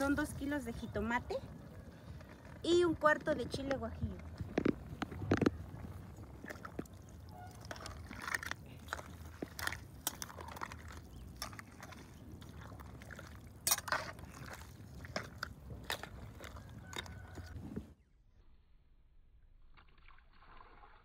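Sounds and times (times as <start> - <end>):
liquid sloshing: 0.0 - 17.6
spatula scraping a pot: 6.6 - 17.4.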